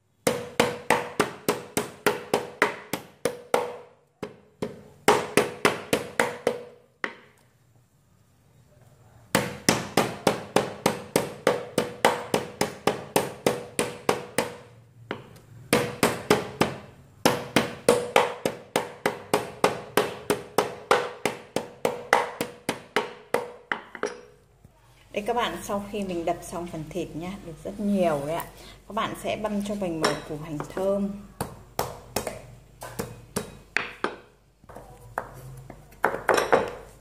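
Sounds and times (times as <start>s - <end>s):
metal mallet pounding meat: 0.2s - 7.2s, 9.4s - 24.2s.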